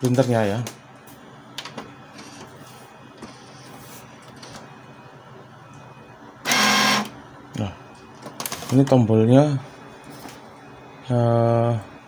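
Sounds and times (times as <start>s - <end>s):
printer motors and carriage running: 1.6s - 5.0s, 6.0s - 7.2s, 8.0s - 9.1s
loud electronic tone: 6.0s - 7.2s.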